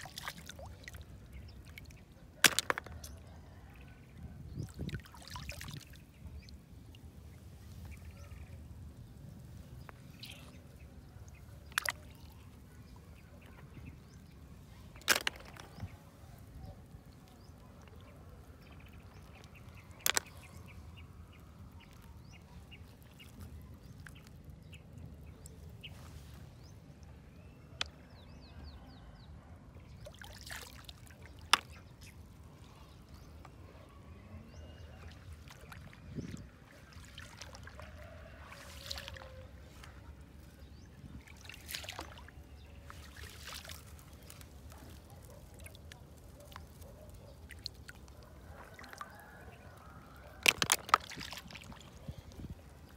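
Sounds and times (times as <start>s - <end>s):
shallow water sloshing: 34.7s - 52.9s.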